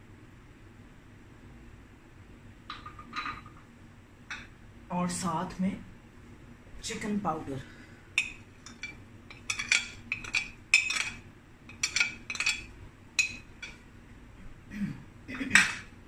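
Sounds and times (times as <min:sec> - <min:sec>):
metal spoon clinking on glass bowl: 0:08.2 - 0:13.8.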